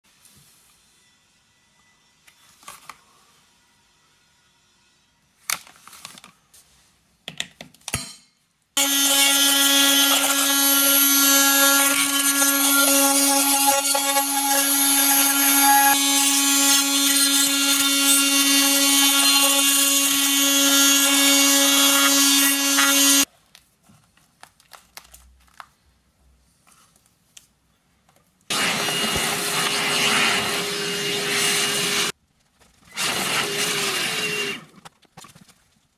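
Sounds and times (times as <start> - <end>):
oscillating multi-tool buzzing: 8.8 - 23.3
vacuum cleaner running: 8.8 - 23.3, 28.5 - 32.1, 32.9 - 34.7.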